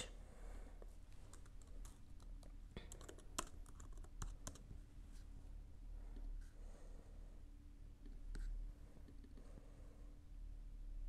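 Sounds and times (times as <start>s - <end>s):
keystrokes on computer keyboard: 1.2s - 4.7s.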